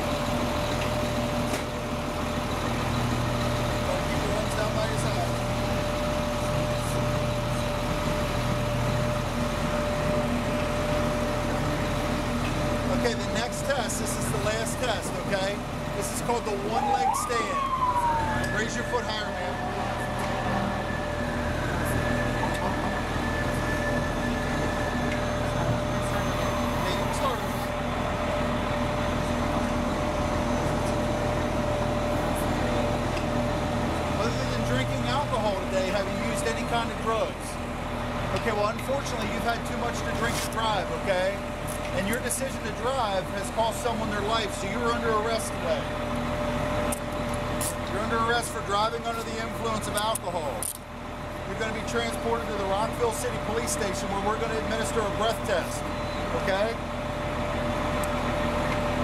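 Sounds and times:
engine idling hum: 0.0s - 59.0s
high engine whine: 0.0s - 59.0s
high whine: 12.5s - 28.0s.

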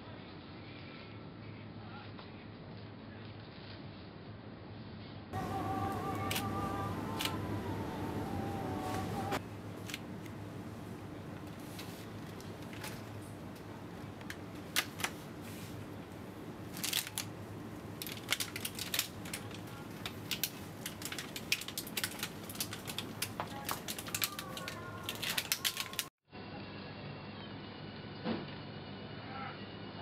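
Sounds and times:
low background hum: 0.0s - 30.0s
muffled room sound: 0.0s - 30.0s
plastic egg cartons crackling: 5.4s - 10.2s, 11.4s - 26.1s.

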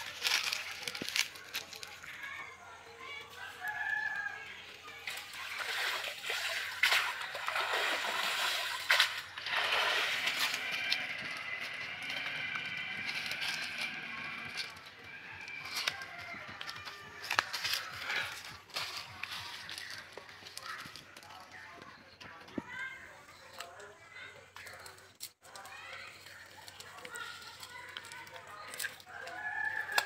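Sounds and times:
sharp clicks and splats: 4.9s - 22.3s, 24.5s - 30.0s
water splashing off fishing net: 5.1s - 10.8s.

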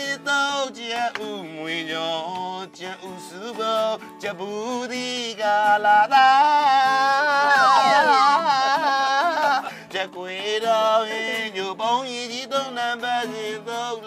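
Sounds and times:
acoustic guitar: 0.0s - 14.0s
person singing: 5.6s - 11.9s.

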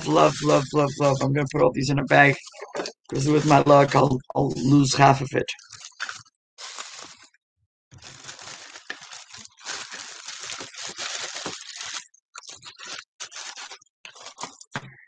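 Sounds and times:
bag rustling and crinkling: 5.6s - 7.3s, 7.9s - 14.7s.

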